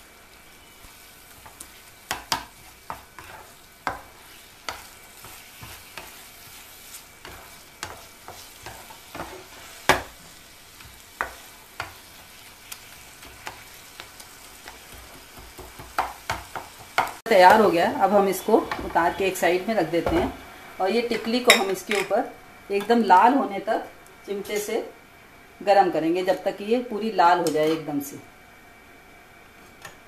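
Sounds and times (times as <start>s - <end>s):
soft sizzle: 0.0s - 30.0s
spatula scraping a frying pan: 0.6s - 17.1s.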